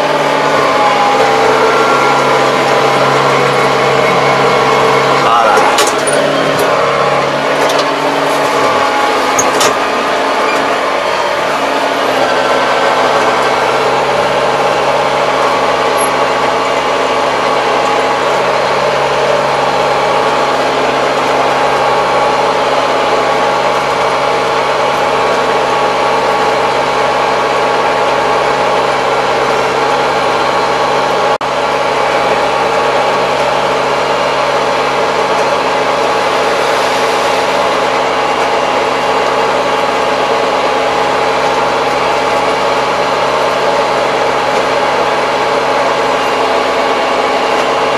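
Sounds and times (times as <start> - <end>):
tractor engine hum from cab: 0.0 - 47.9.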